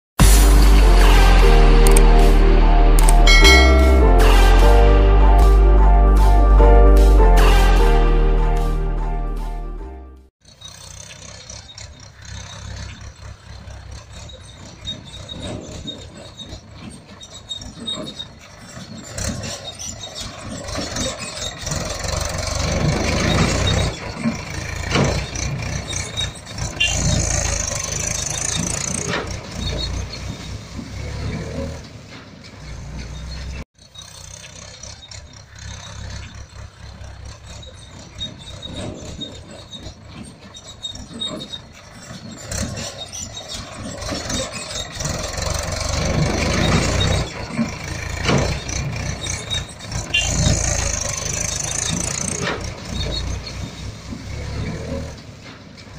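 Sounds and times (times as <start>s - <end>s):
toy tractor engine running: 10.4s - 30.2s, 33.8s - 54.9s.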